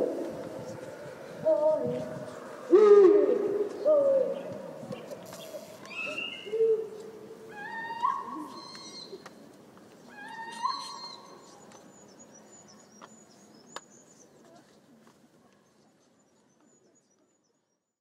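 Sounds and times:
faint high bird chirps: 3.8s - 6.8s, 7.6s - 9.2s.

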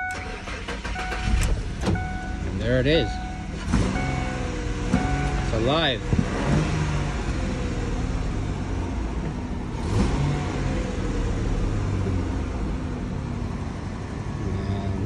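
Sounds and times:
truck engine idling: 0.0s - 9.8s.

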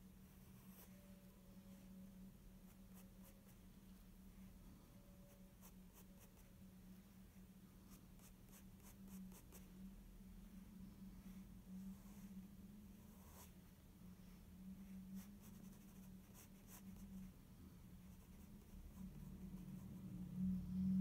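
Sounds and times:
steady low hum: 0.0s - 21.0s
pencil scratching on paper: 15.2s - 17.0s.

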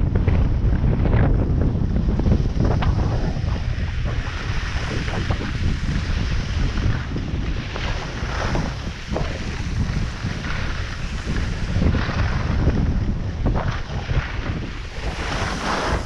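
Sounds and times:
wind buffeting microphone: 0.0s - 16.0s
skis swishing: 2.2s - 16.0s
skis hissing on snow: 14.8s - 16.0s.

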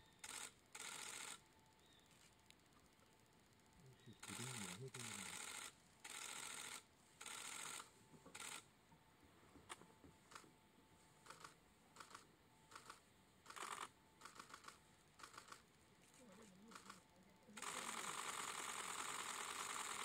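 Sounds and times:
faint camera shutter clicks: 4.2s - 8.7s, 11.2s - 17.0s.

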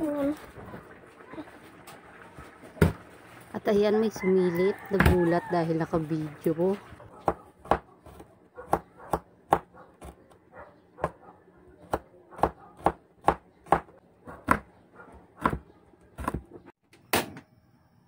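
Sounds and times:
knife chopping on wooden board: 7.2s - 10.2s, 11.8s - 14.7s, 15.4s - 16.5s.

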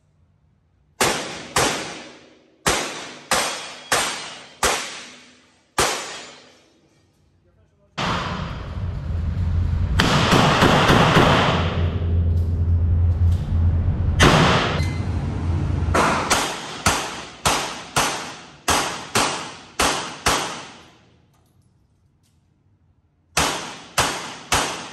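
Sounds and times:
revolver shots indoors: 0.5s - 7.1s, 8.0s - 24.9s
loud steady noise with hum: 7.9s - 21.1s.

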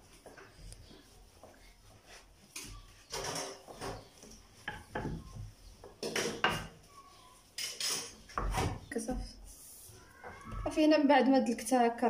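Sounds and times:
rolling pin rolling dough: 0.0s - 8.8s.

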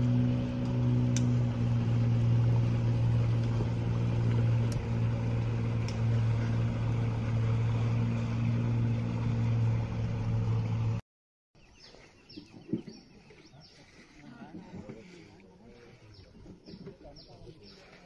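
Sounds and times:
outboard motor droning: 0.0s - 11.0s, 11.6s - 18.0s.

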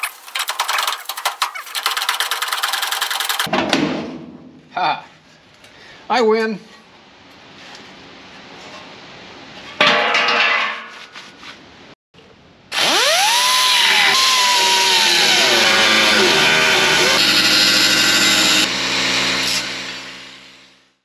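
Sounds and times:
angle grinder grinding metal: 12.8s - 20.8s.

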